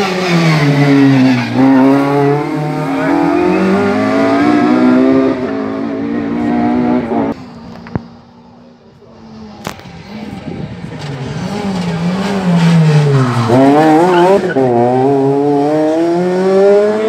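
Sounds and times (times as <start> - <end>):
rally car engine accelerating: 0.0 - 7.4, 9.5 - 17.0.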